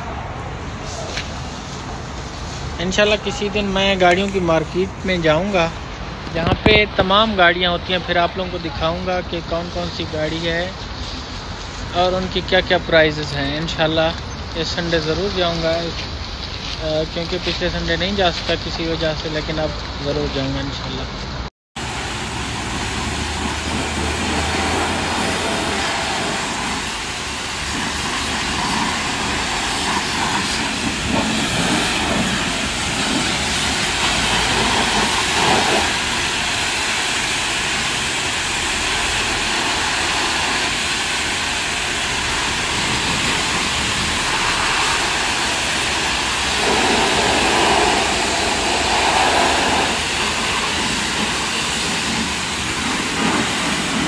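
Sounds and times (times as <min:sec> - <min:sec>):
pressure washer jet hissing: 0:21.8 - 0:54.0.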